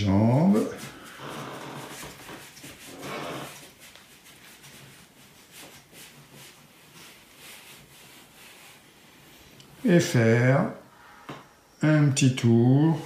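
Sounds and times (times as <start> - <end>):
legs sliding on foam mat: 0.5 - 9.4.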